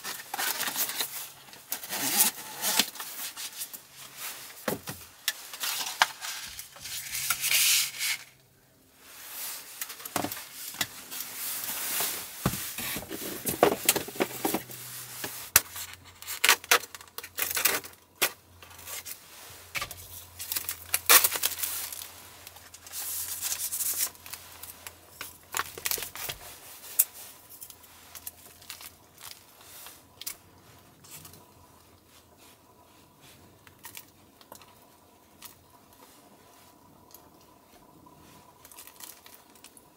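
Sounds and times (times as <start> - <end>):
plastic wrap tearing: 0.0 - 3.9, 5.3 - 8.4, 15.5 - 19.2, 20.1 - 24.8
paper rustling and crinkling: 0.0 - 8.4, 9.2 - 30.4.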